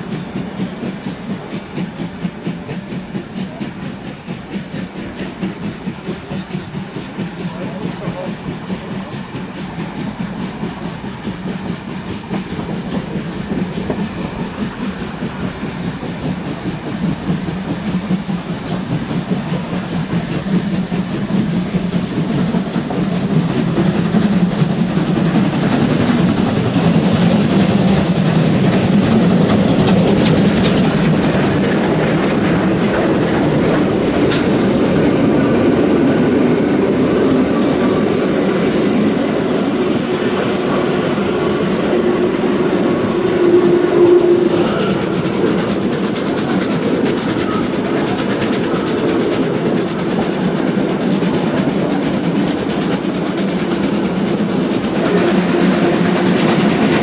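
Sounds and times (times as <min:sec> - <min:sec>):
steam locomotive exhaust: 0:00.0 - 0:57.0
carriage wheels clattering on rails: 0:17.8 - 0:40.5.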